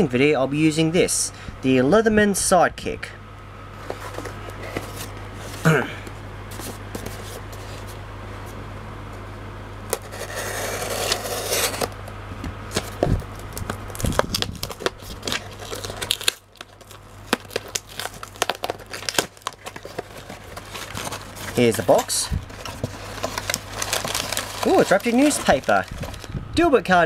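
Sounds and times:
steady low hum: 0.0s - 27.0s
cardboard scraping: 3.8s - 5.7s, 6.5s - 8.0s, 9.9s - 12.0s, 12.7s - 26.3s
cardboard and tape tearing: 9.9s - 12.0s, 12.7s - 26.3s.

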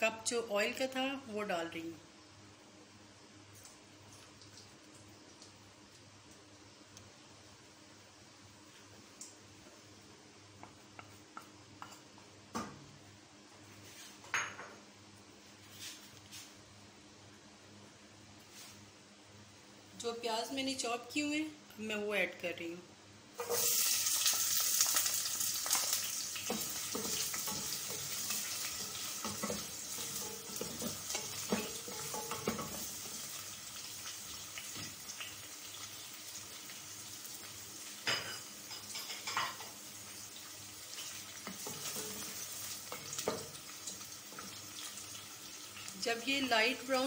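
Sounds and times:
onions sizzling in hot oil: 23.4s - 47.0s
wooden spatula scraping pot: 26.5s - 33.0s.

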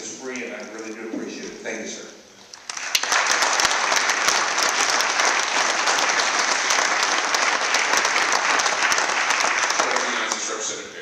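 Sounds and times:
crowd applauding: 2.6s - 10.8s.

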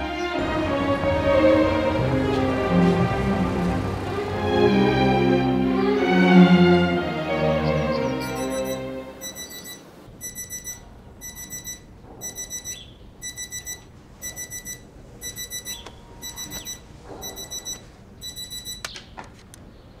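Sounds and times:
alarm clock beeping: 8.2s - 18.9s.

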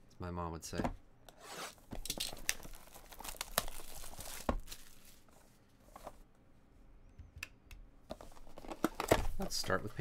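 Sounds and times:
plastic wrap crinkling and tearing: 2.0s - 5.3s.

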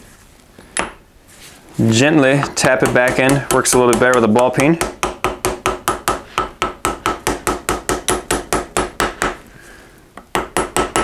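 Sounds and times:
hammer tapping metal: 2.5s - 9.4s, 10.2s - 11.0s.

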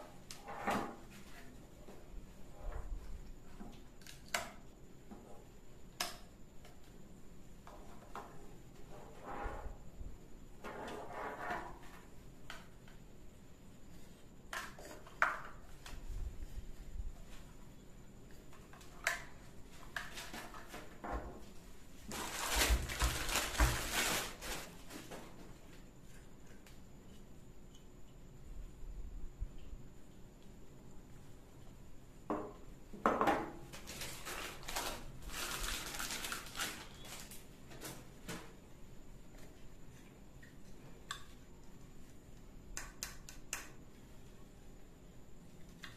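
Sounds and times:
plastic bag crinkling: 22.1s - 24.9s, 33.8s - 37.4s.

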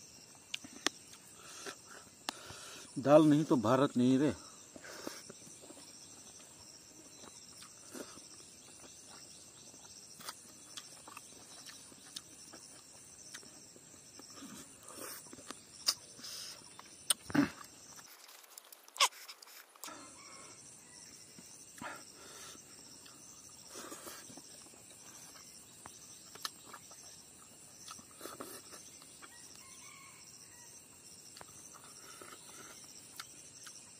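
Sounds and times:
chewing and lip smacks: 7.1s - 13.6s, 26.2s - 29.4s, 31.3s - 33.9s.

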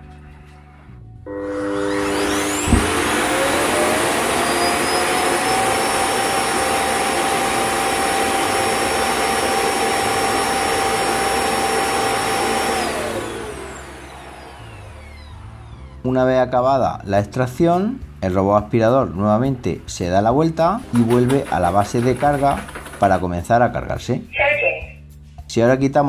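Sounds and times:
suction motor rushing air whine: 1.3s - 16.0s.

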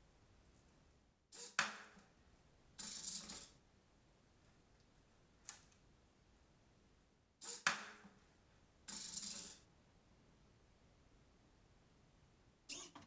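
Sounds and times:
short mechanical burst: 7.4s - 7.7s.

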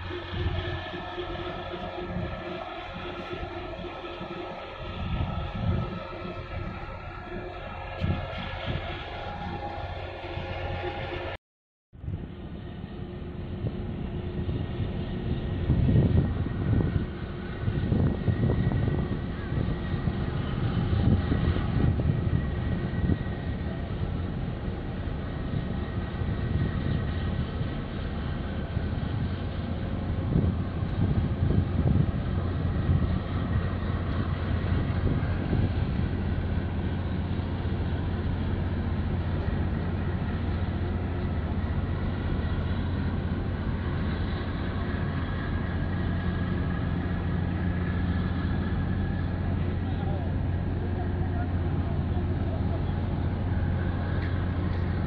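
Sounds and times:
ship engines droning: 0.0s - 11.4s, 12.0s - 55.0s
wind buffeting microphone: 0.0s - 11.4s, 12.0s - 55.0s.

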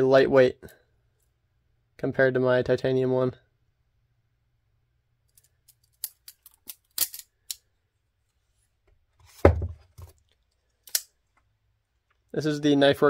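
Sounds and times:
dull thump: 9.4s - 9.8s.

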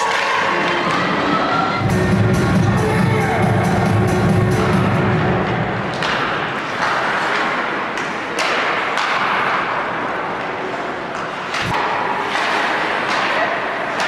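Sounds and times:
hockey sticks and puck clacking: 0.0s - 1.7s, 5.4s - 14.0s.

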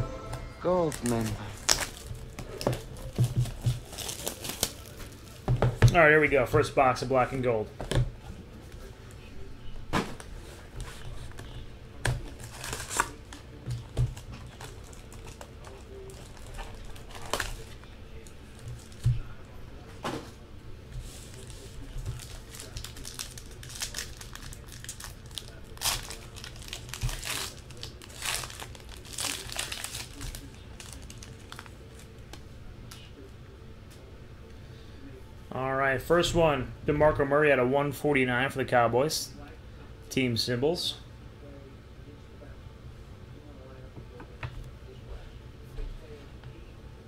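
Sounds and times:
wrapping crinkling and tearing: 0.9s - 5.4s, 12.2s - 13.5s, 14.1s - 19.0s, 21.1s - 32.2s.

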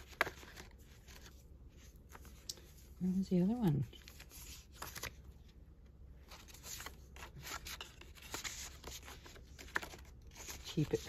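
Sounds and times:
paper rustling: 0.0s - 5.4s, 6.2s - 11.0s.

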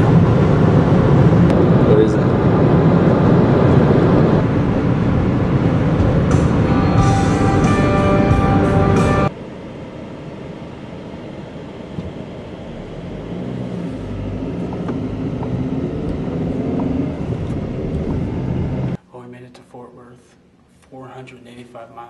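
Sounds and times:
car engine and tyre noise: 0.0s - 19.0s
music: 6.1s - 9.4s.

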